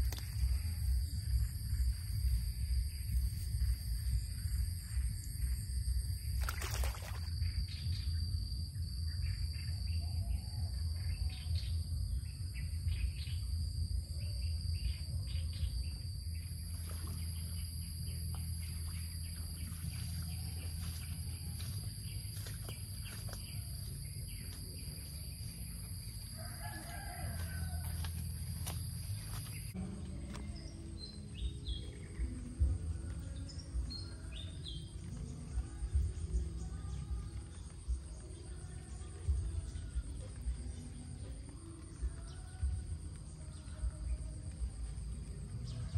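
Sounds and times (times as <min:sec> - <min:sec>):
low rumble: 0:00.0 - 0:26.4
high-pitched insect drone: 0:00.0 - 0:29.9
rooster crowing: 0:26.1 - 0:29.4.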